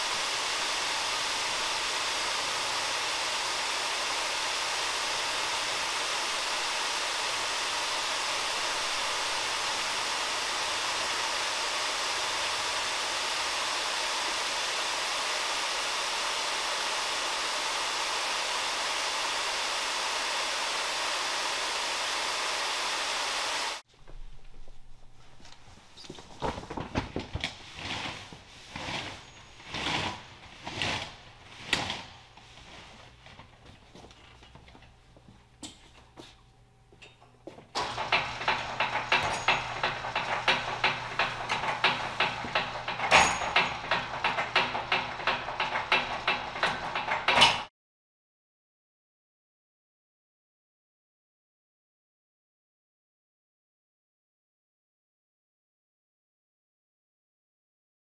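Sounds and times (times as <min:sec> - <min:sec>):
machine spraying water: 0:00.0 - 0:23.8, 0:37.8 - 0:47.4.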